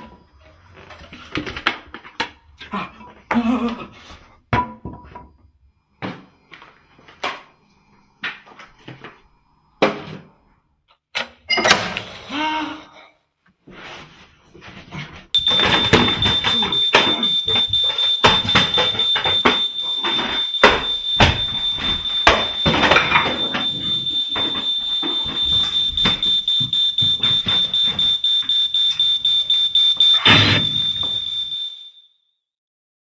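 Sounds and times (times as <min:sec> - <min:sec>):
knocks clatter and bangs: 0:15.4 - 0:28.2
smoke alarm high-pitched tone: 0:15.4 - 0:32.4.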